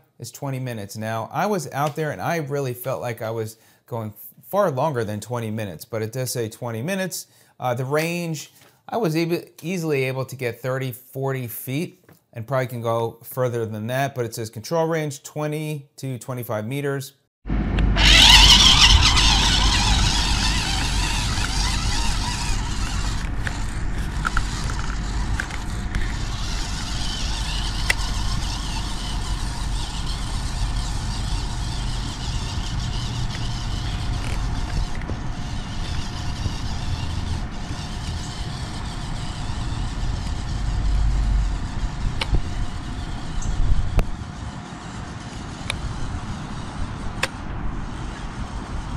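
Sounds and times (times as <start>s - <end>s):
steady low rumble: 17.5s - 48.9s
electric motors whining: 18.0s - 48.9s.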